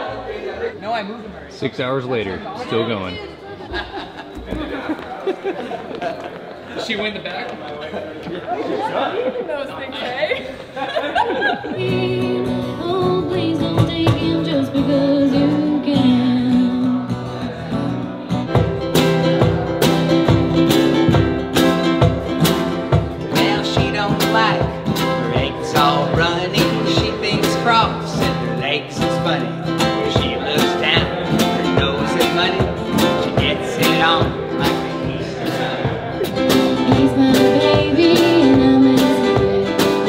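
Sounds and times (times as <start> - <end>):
strummed acoustic guitars: 11.6 - 40.0
person singing: 11.7 - 17.4, 30.1 - 40.0
plucked stringed instrument: 11.8 - 40.0
steady drum beat: 18.5 - 40.0.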